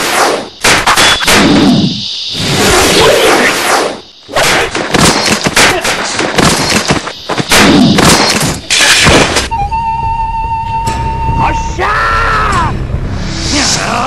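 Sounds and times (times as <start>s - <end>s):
punch and strike sound effects: 0.0s - 1.9s, 4.3s - 9.5s.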